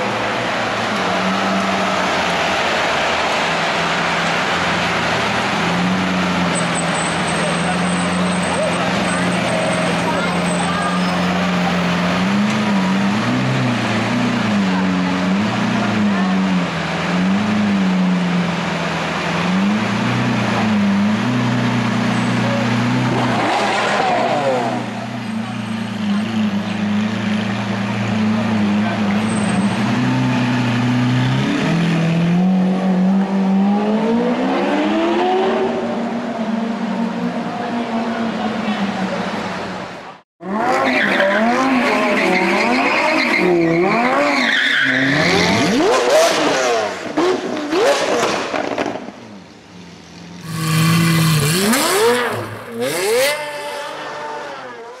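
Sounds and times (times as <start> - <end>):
sports car engine accelerating: 43.6 - 55.0
sports car engine revving: 50.4 - 55.0.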